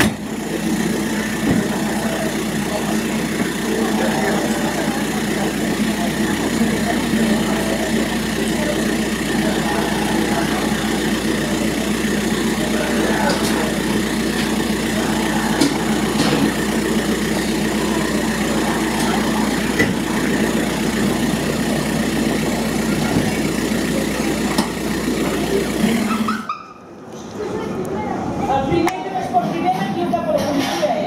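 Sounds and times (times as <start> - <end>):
engine droning steadily: 0.0 - 31.0.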